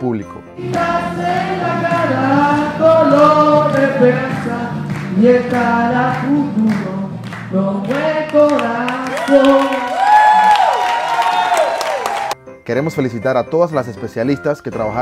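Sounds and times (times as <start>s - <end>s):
group of voices singing: 0.6s - 10.0s.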